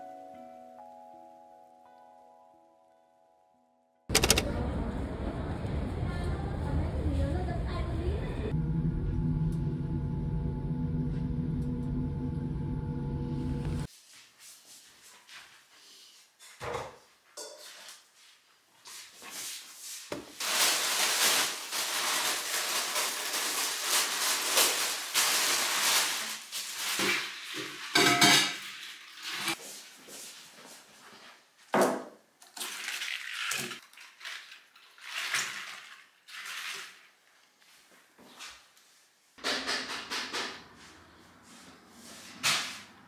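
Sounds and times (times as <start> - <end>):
knocks and clicks: 4.1 - 4.5
paper rustling and crinkling: 20.4 - 28.0.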